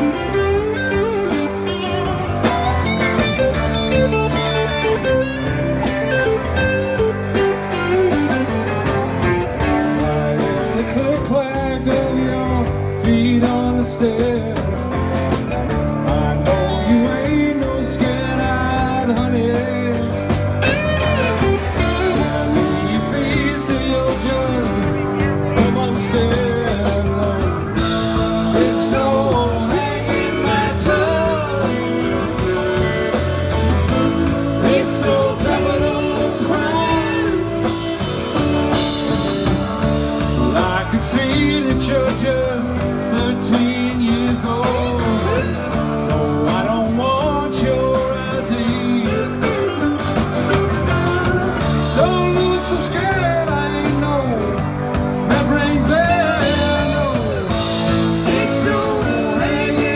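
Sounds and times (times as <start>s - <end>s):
live rock band playing: 0.0s - 59.9s
person singing: 10.0s - 15.1s, 15.7s - 50.2s, 50.9s - 59.9s.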